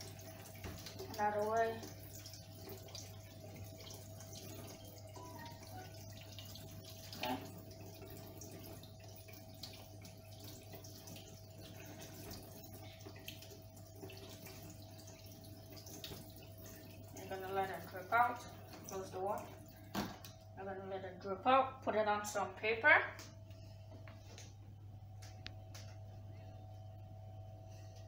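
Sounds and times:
tap running in thin stream: 0.0s - 20.4s.

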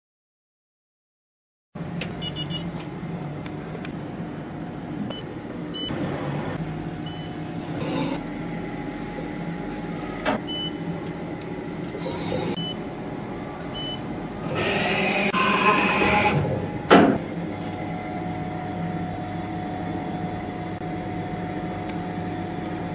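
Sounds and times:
short electronic beeps: 2.2s - 2.7s
lathe humming: 5.4s - 22.9s.

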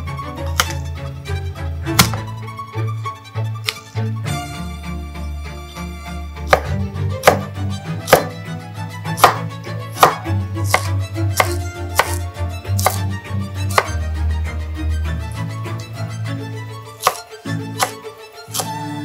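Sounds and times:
background music: 0.0s - 19.0s
knife slicing on cutting board: 0.5s - 0.8s, 2.0s - 2.3s, 6.5s - 7.5s, 8.1s - 8.4s, 9.2s - 13.1s, 13.7s - 14.0s, 17.0s - 18.8s.

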